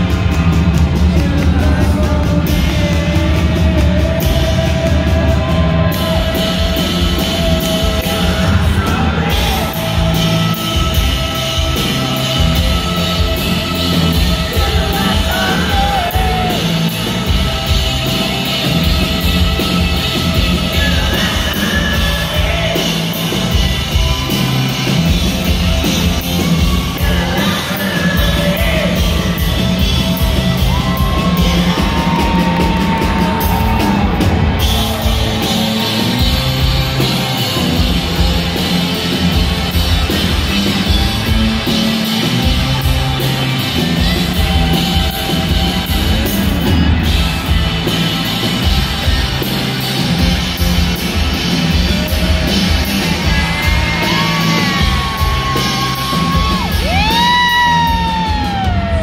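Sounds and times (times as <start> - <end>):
bass guitar: 0.0 - 59.0
drums: 0.0 - 59.0
electric guitars: 0.0 - 59.0
person singing: 0.8 - 13.2, 14.1 - 16.9, 20.4 - 24.6, 52.1 - 59.0.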